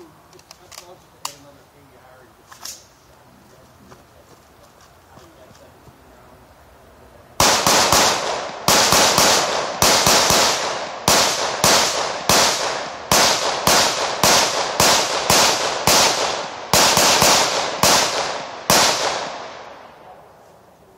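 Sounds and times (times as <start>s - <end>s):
gunshots with ringing echo: 7.4s - 20.2s.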